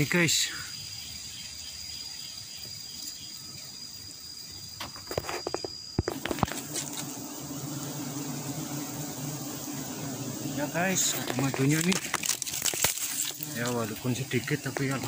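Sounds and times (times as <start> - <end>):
forest ambience: 0.0 - 15.0
insect trill: 0.0 - 15.0
handling knocks and rustles: 11.2 - 13.6.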